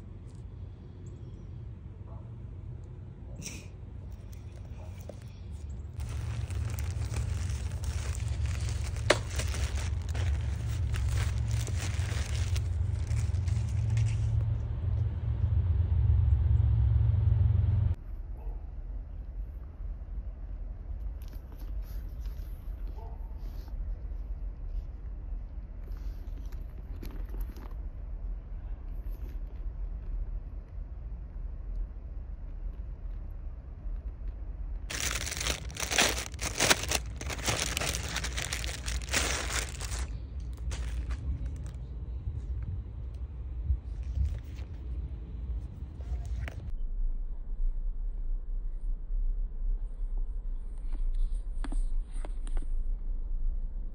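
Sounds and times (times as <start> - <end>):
wind rumbling on microphone: 4.2 - 18.0, 26.3 - 53.9
plastic pouch crinkling: 6.0 - 14.2, 34.9 - 41.8.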